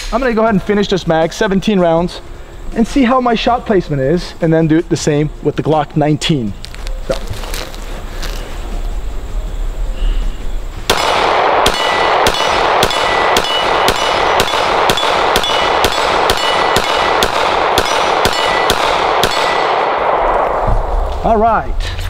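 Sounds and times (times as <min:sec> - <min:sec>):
pistol shots: 0:10.9 - 0:20.6
metallic ring of steel target: 0:10.9 - 0:21.0.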